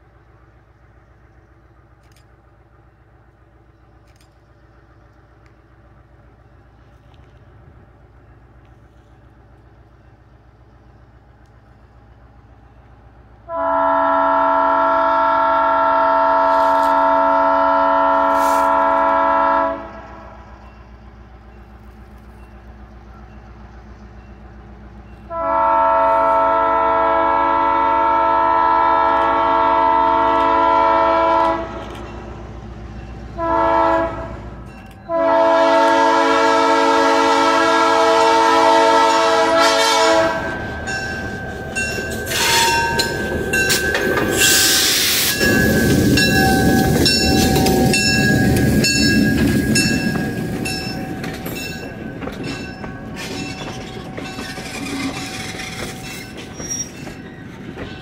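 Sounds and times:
diesel locomotive rumble: 0.0 - 58.0
locomotive air horn chord: 13.5 - 20.4, 25.3 - 32.0, 33.4 - 34.5, 35.1 - 43.8.

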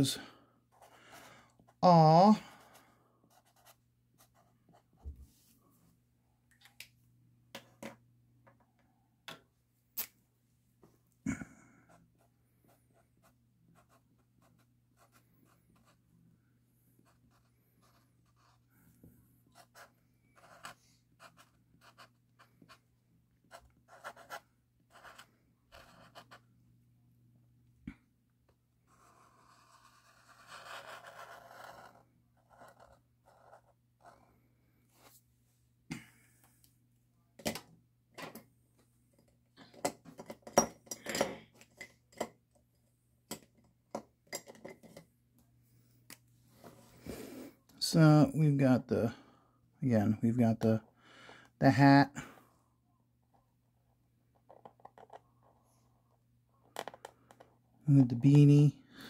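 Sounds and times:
pen scratching on paper: 2.5 - 4.9, 19.5 - 22.8, 23.5 - 26.4, 28.9 - 34.2.

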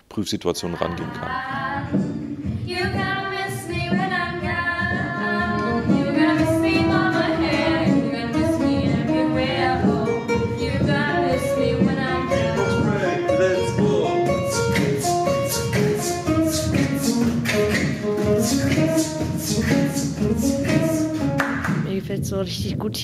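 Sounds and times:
girls singing together: 0.8 - 12.9
acoustic guitar: 3.8 - 22.0.

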